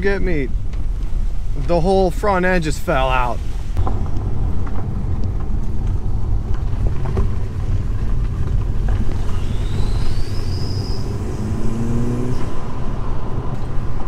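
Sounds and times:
car engine rumble: 0:00.0 - 0:14.0
road noise: 0:00.0 - 0:14.0
high whistle: 0:09.3 - 0:11.9.

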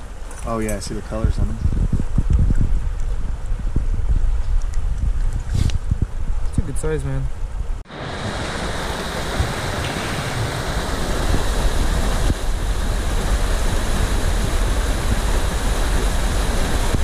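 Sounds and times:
water rushing over rocks: 0:07.9 - 0:17.0.

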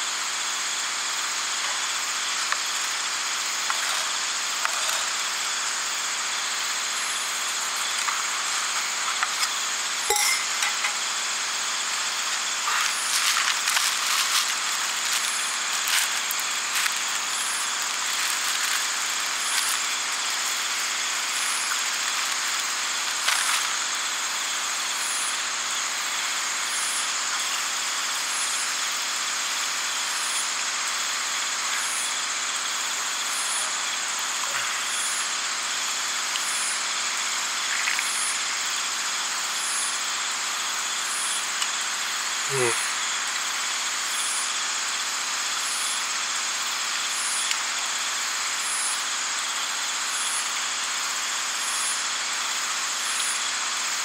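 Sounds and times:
night insects chorus: 0:00.0 - 0:54.0
soft high pulse: 0:10.0 - 0:11.2
plastic bag crinkling: 0:12.5 - 0:23.8.

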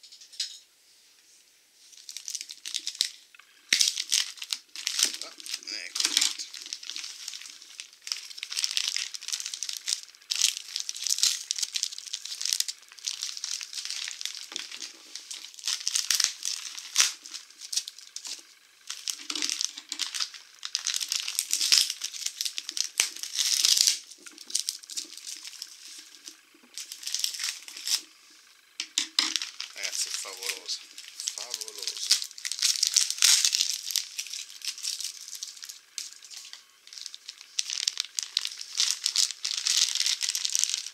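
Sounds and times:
plastic wrapping crinkling: 0:01.2 - 0:40.9.

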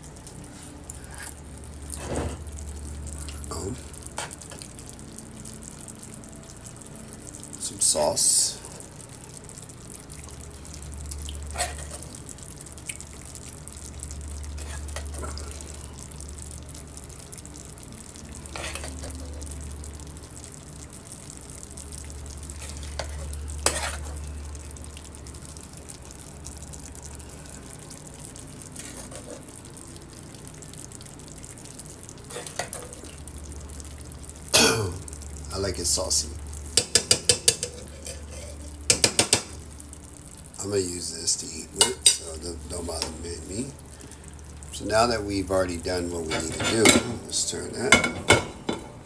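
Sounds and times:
low hum: 0:00.1 - 0:07.6, 0:08.7 - 0:32.3
spoon clinking on pan and plate: 0:36.8 - 0:39.5, 0:47.9 - 0:48.9.

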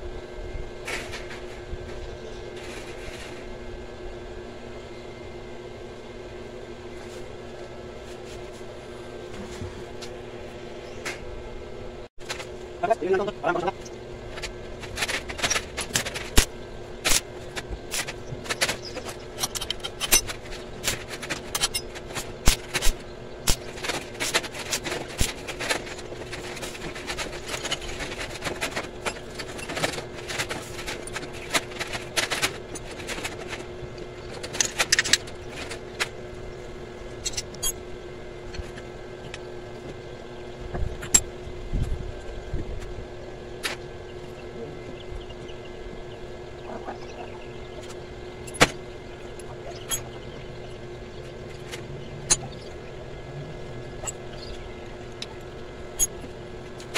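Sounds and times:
steady hum: 0:00.0 - 0:56.9
arc welding crackling and popping: 0:12.1 - 0:56.9.

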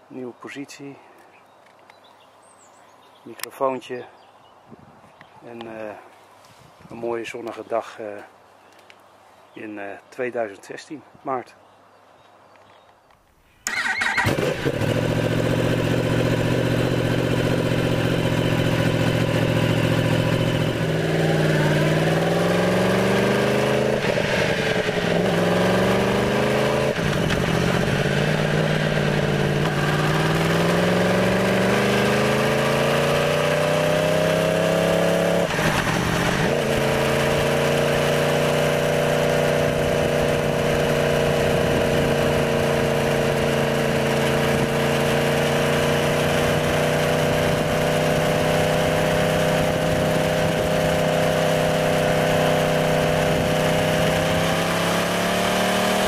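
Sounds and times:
motorcycle engine and exhaust: 0:13.7 - 0:56.0.

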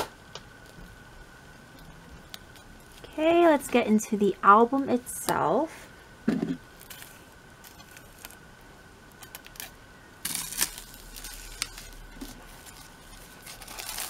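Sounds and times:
plastic film crinkling: 0:06.8 - 0:08.4, 0:09.1 - 0:14.0.

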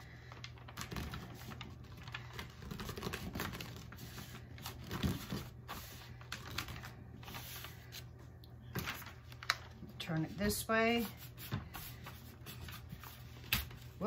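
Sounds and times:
hands rubbing paper: 0:00.5 - 0:08.1.

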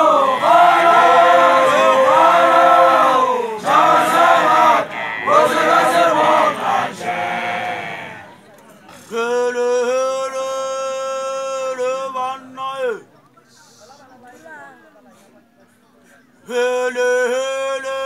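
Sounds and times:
men chanting a song: 0:00.0 - 0:08.3.

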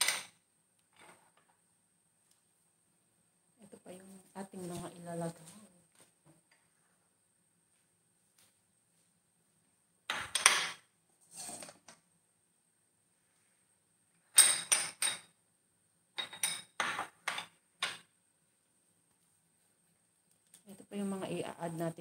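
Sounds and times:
dishes and utensils clattering: 0:10.1 - 0:11.9, 0:14.3 - 0:15.3, 0:16.2 - 0:17.6.

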